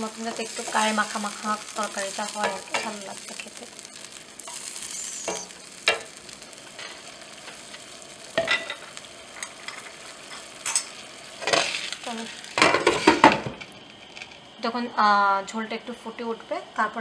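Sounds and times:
spatula stirring vegetables in pan: 0.0 - 13.2
water sizzling in pan: 0.0 - 17.0.

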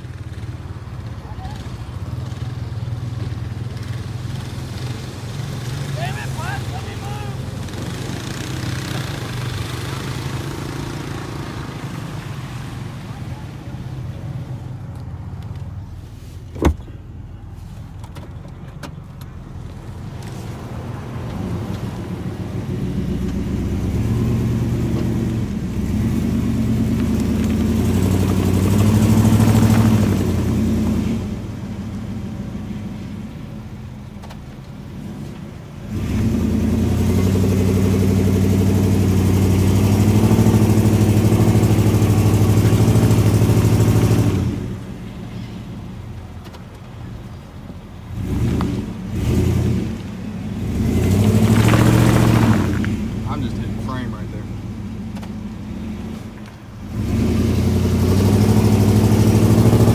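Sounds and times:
truck engine revving hard: 3.6 - 12.2, 21.4 - 32.3, 35.8 - 44.9, 48.1 - 54.8, 56.8 - 59.9.

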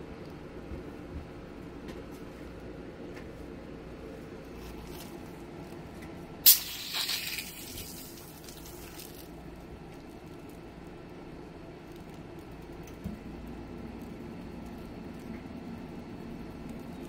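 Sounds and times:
water spraying from hose: 6.4 - 9.3.

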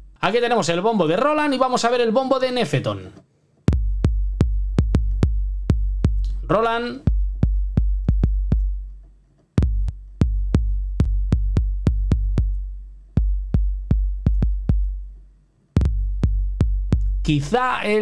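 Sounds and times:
electronic bass drum booms: 3.7 - 9.0, 9.6 - 15.2, 15.8 - 17.4.

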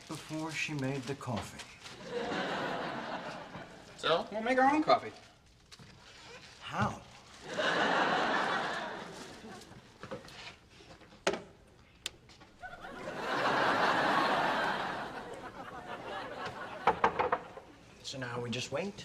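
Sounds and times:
audience laughing: 2.0 - 4.0, 7.4 - 9.8, 12.6 - 17.8.

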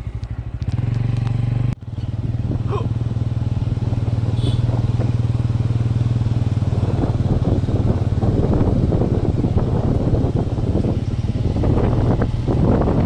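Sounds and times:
motorbike engine running: 0.0 - 13.0
rough rumbling noise: 0.0 - 13.0.

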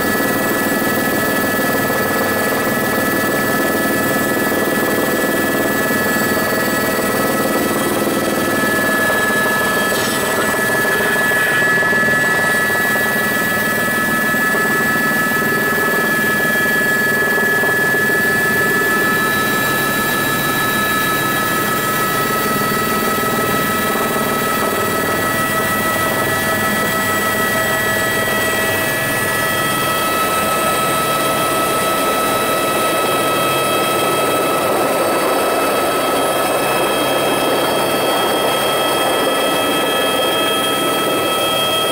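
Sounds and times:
aircraft engine drone: 0.0 - 41.9
high whining tones: 5.6 - 35.0.

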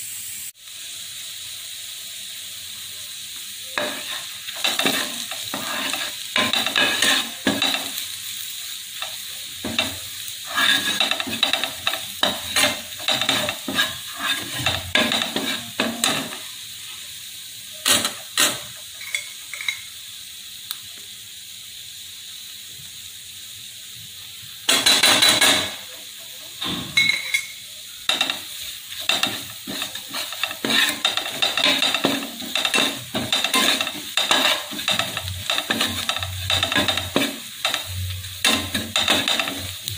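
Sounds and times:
onions sizzling in oil: 0.0 - 39.9
spoon scraping frying pan: 3.8 - 8.0, 9.0 - 16.5, 17.8 - 19.9, 24.7 - 39.9.

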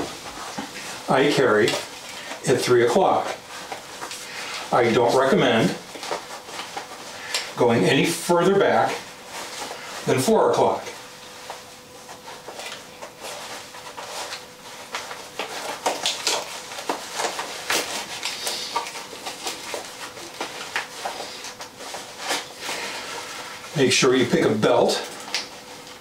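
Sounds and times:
holster and belt scrapes and rustles: 12.6 - 23.7.

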